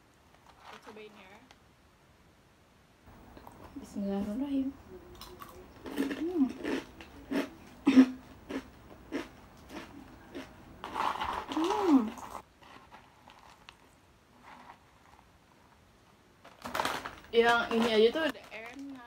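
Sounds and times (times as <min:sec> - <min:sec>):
person humming: 0:04.7 - 0:08.2, 0:11.5 - 0:12.3
crunching and chewing snack: 0:05.1 - 0:15.6.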